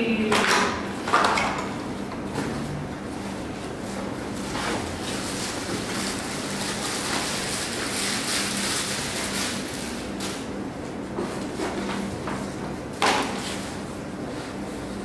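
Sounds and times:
plastic and cardboard rustling: 3.8s - 10.5s.

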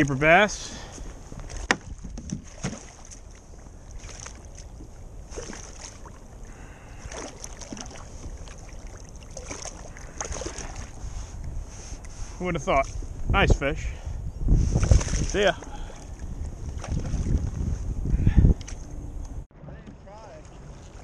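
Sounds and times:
water splashing against kayak: 1.4s - 12.1s, 14.6s - 17.6s, 19.7s - 21.0s
wind on microphone: 9.8s - 21.0s.

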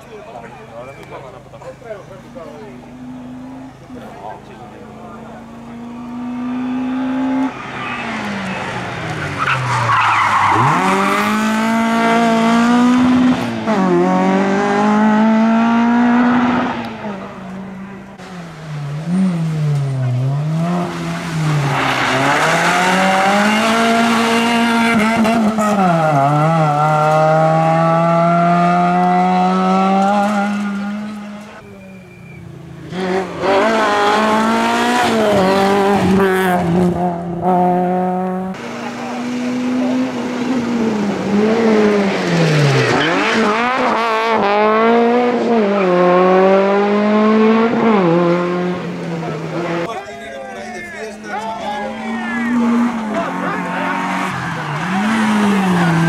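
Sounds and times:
rally car engines revving: 0.0s - 56.0s
tyres skidding on gravel: 7.5s - 12.4s, 18.1s - 27.3s, 49.2s - 56.0s.

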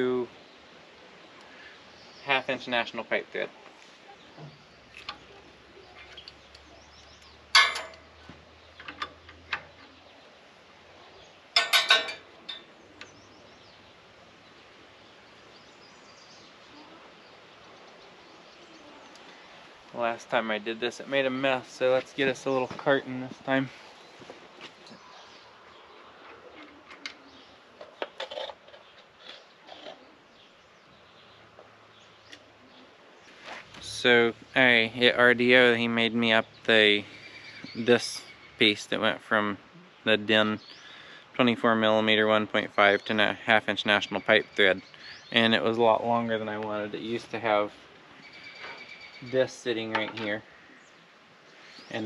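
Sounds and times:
wrench clinking on metal fittings: 7.5s - 8.0s, 11.6s - 12.7s.

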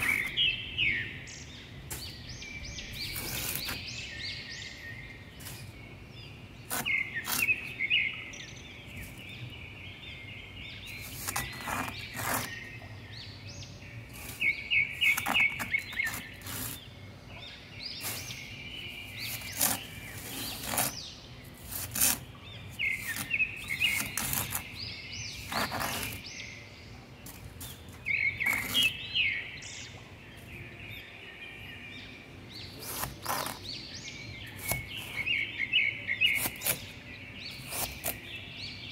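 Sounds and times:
toy shovel digging in damp sand: 0.0s - 0.5s, 1.9s - 4.2s, 5.3s - 5.8s, 6.6s - 7.8s, 10.9s - 12.7s, 14.1s - 16.9s, 17.8s - 26.5s, 27.2s - 29.1s, 32.7s - 33.8s, 34.5s - 38.3s
birds chirping: 0.0s - 38.9s.

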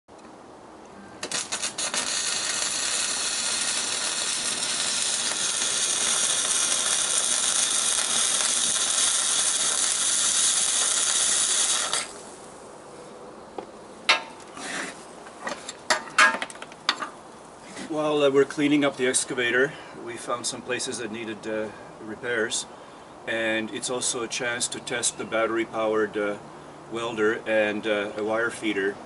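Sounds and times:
welding arc hissing: 1.2s - 12.5s
welding arc sputtering: 1.2s - 12.5s.

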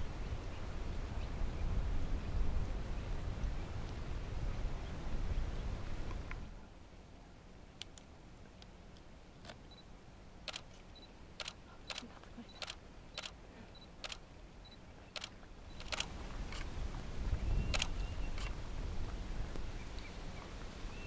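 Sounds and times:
sharp irregular clicks: 15.2s - 16.7s.

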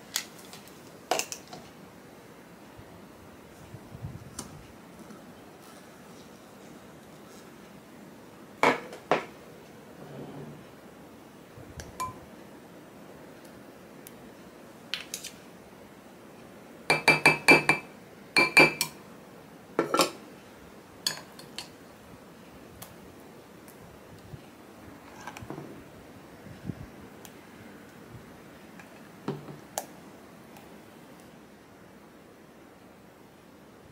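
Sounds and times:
metal spoon knocking glass bowl: 16.9s - 17.8s, 18.4s - 19.0s.

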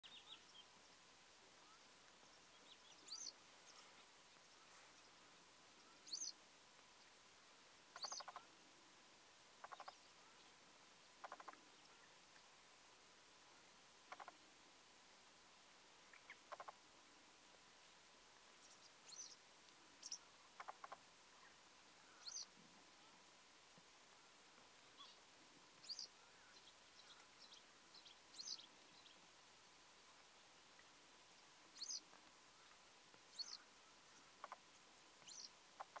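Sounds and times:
short high bird calls: 7.9s - 8.5s, 20.0s - 23.2s.

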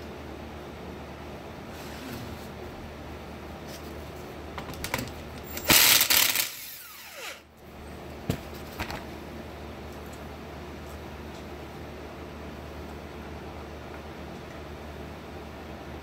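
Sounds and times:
motor whine spinning down: 5.7s - 7.5s.

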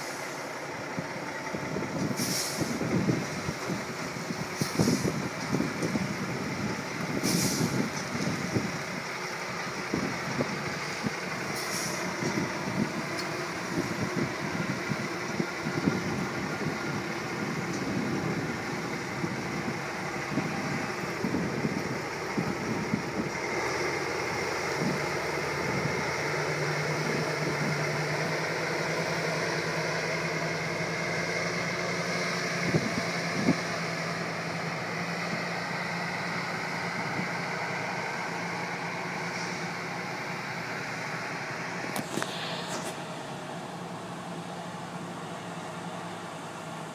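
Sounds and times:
truck diesel engine running: 0.0s - 46.9s
air brake hisses: 2.2s - 2.8s, 4.6s - 5.2s, 7.2s - 7.8s, 11.5s - 12.1s, 42.1s - 43.0s.

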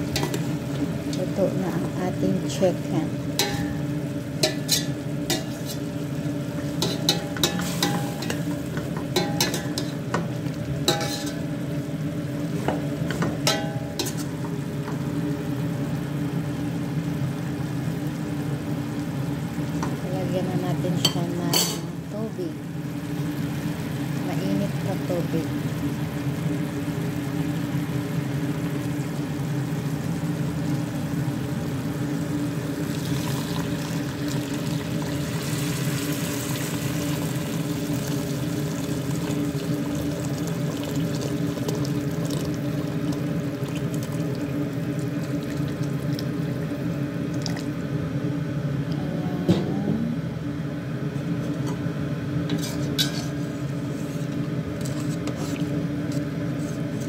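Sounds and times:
steady low hum: 0.0s - 57.0s
water pouring and splashing into pot: 32.8s - 46.6s, 47.3s - 47.7s.

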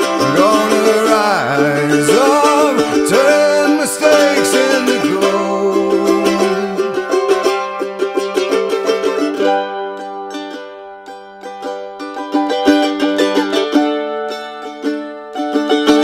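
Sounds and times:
country song instrumental: 0.0s - 16.0s
sliding lead melody: 0.0s - 16.0s.

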